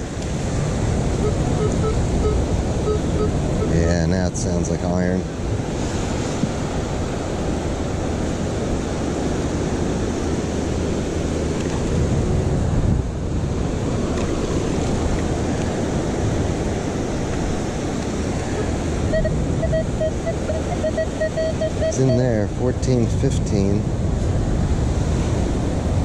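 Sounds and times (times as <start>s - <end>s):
wind buffeting microphone: 0.0s - 20.4s, 21.8s - 26.0s
ocean surf: 0.0s - 26.0s
metal detector beeps: 1.2s - 4.0s, 19.0s - 22.5s.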